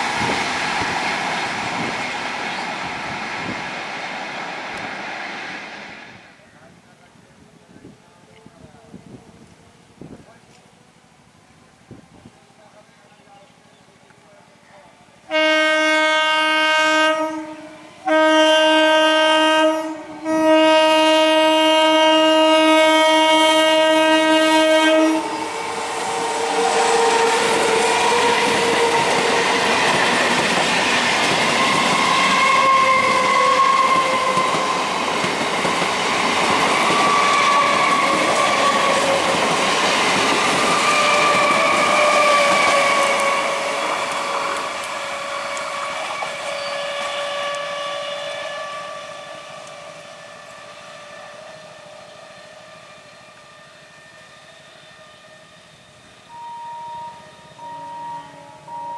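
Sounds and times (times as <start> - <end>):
train coaches rumbling past: 0.0 - 58.9
train horn blasts: 15.3 - 29.8, 31.6 - 34.8, 40.8 - 58.9.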